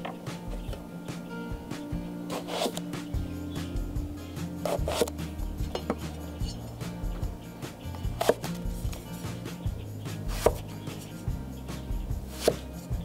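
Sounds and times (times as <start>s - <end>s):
cleaver chopping on wooden block: 4.6s - 6.6s, 8.1s - 9.0s, 10.3s - 10.7s, 12.3s - 12.7s.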